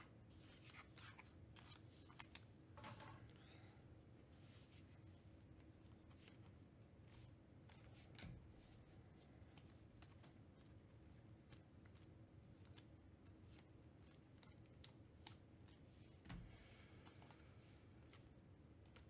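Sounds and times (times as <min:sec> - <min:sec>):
trading cards flipping: 0:00.5 - 0:03.0.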